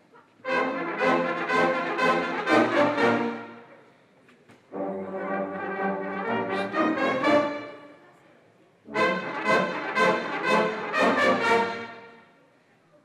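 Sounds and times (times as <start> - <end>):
brass fanfare: 0.4 - 3.7, 4.7 - 8.0, 8.9 - 12.3.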